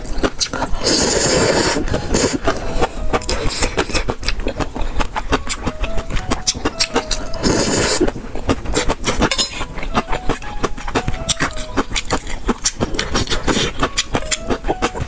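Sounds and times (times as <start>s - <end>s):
mouth clicks: 0.0s - 15.0s
noodles slurping: 0.0s - 15.0s
wet chewing: 0.0s - 15.0s
chopsticks clinking on metal bowl: 9.2s - 9.8s.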